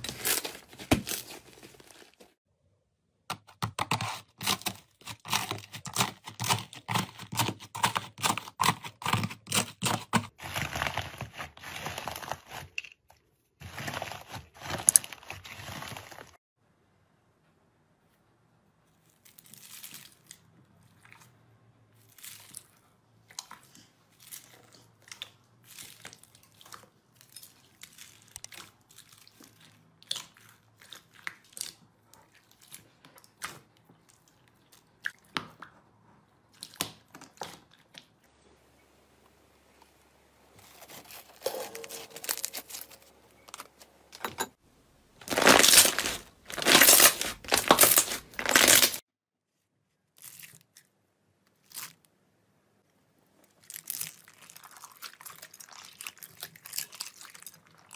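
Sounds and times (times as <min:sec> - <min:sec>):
slime stretching crackle: 0:45.2 - 0:49.0.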